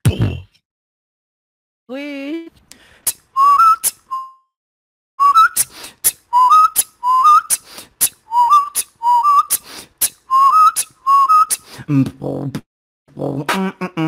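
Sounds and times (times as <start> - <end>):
beatbox mouth clicks: 2.7 - 4.1, 5.4 - 12.2
upward sliding whistle: 3.4 - 4.4, 5.2 - 11.6.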